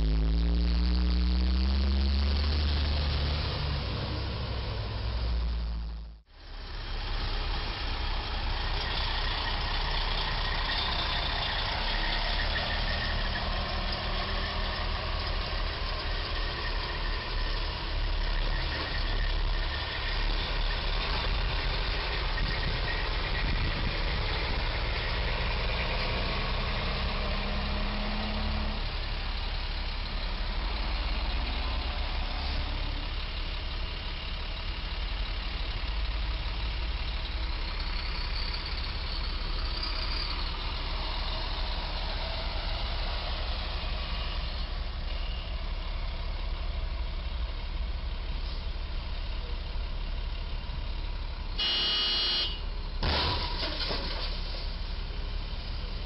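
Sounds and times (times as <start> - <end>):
loud steady tone: 0.0 - 4.3, 51.6 - 52.7
traffic rumble: 0.0 - 56.0.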